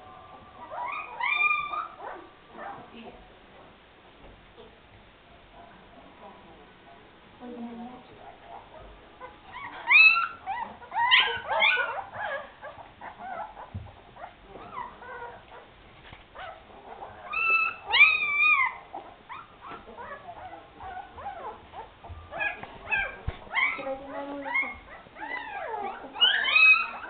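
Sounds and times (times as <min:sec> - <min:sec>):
puppies whimpering and squealing: 0:00.3 - 0:02.9, 0:08.3 - 0:27.0.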